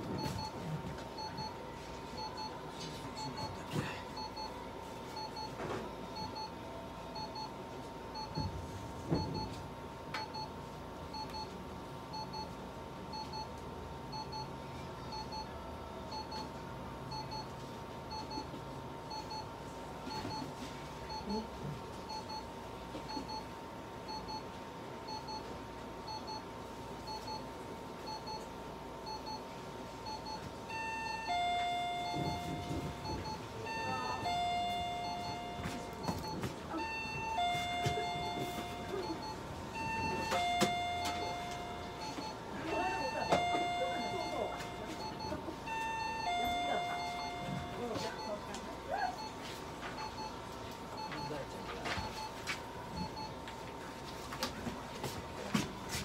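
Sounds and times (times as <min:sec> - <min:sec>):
tones at different pitches: 0:30.7 - 0:48.4.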